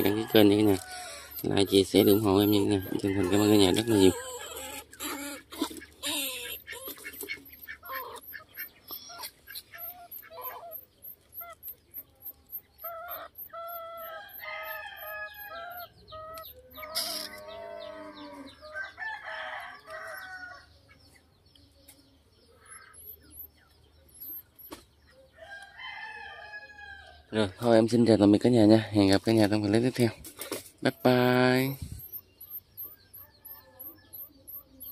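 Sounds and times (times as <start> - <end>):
rooster crowing: 0.0 - 4.5, 14.0 - 16.0, 17.4 - 20.7
chickens clucking: 0.0 - 25.4.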